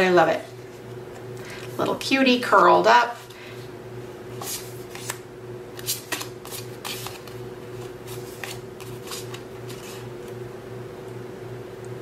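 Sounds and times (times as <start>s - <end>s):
paper cards rustling: 4.4s - 10.1s.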